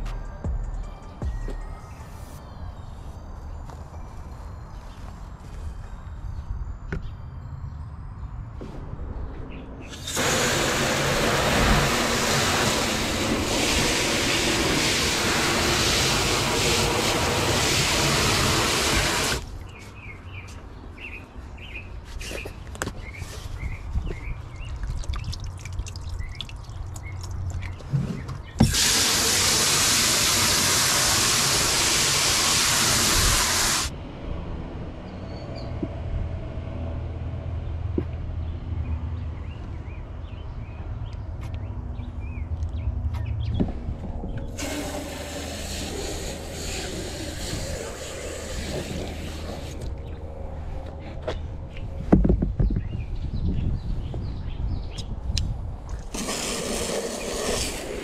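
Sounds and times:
water gushing from a hose: 9.9s - 19.4s, 24.6s - 27.7s, 28.6s - 33.9s, 44.5s - 49.9s, 56.0s - 58.0s.

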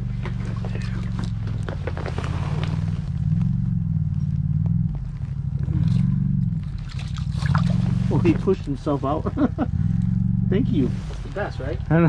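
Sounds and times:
low motor hum: 0.0s - 12.0s
fish flopping on ice: 5.8s - 8.0s.

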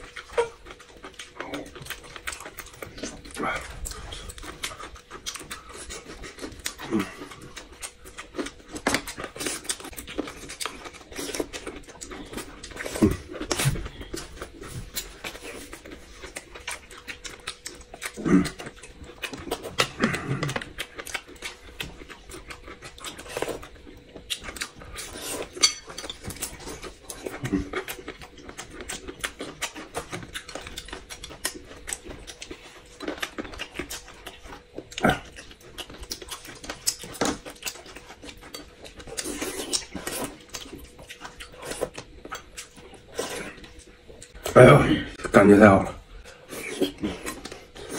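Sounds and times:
people slurping and chewing: 0.0s - 47.9s.

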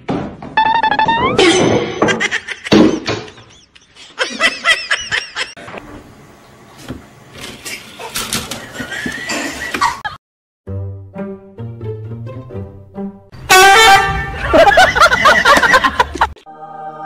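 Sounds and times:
people giggling: 2.0s - 5.6s, 8.6s - 10.2s, 14.2s - 16.4s.

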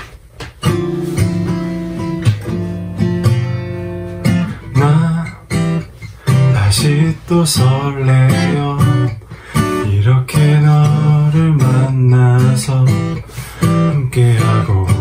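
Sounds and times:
acoustic guitar strummed chords: 0.4s - 15.0s
man singing: 4.6s - 5.6s, 6.3s - 15.0s.

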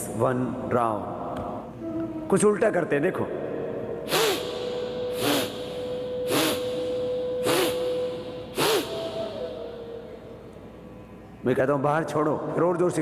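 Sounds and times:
forceful nasal exhalations: 4.1s - 9.4s.

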